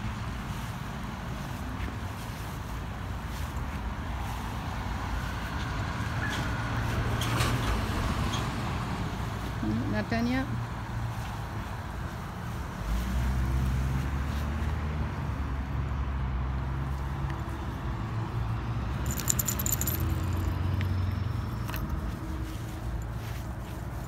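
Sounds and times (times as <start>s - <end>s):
dog tags jingling: 18.9s - 22.2s.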